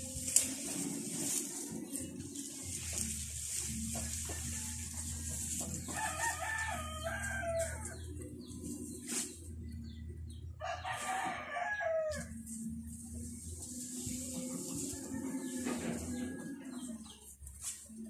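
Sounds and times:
rooster crowing: 5.9 - 8.0, 10.6 - 12.4, 14.7 - 17.0.

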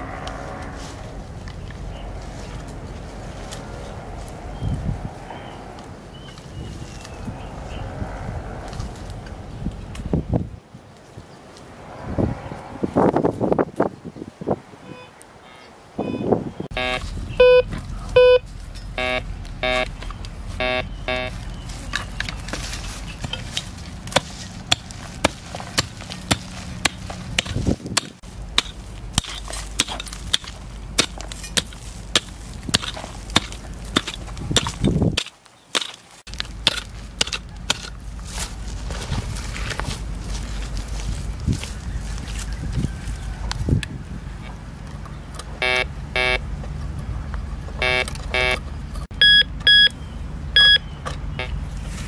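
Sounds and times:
metal detector beeps: 16.0 - 18.4, 19.0 - 20.0, 20.6 - 21.4, 45.6 - 46.4, 47.8 - 48.6, 49.2 - 50.0, 50.6 - 51.6
hand pick striking soil: 19.0 - 41.0.

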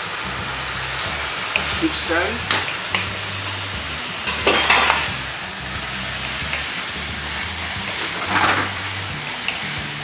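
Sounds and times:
food sizzling in a wok: 0.0 - 10.0
wooden spatula scraping pan: 7.8 - 8.9.

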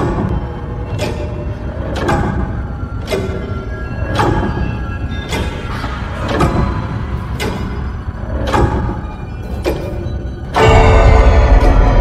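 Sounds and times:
low rumbling drone: 0.0 - 12.0
grandfather clock ticks: 1.0 - 4.6, 7.3 - 9.0.

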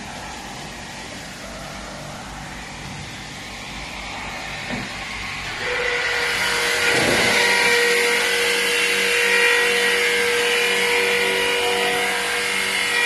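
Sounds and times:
hum: 0.0 - 13.0
ski service machine grinding: 5.4 - 13.0.

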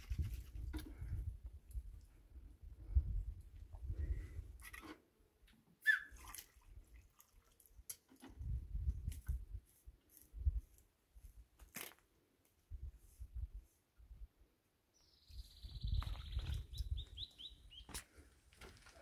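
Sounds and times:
plastic containers on gravel: 11.5 - 12.6, 16.0 - 19.0.

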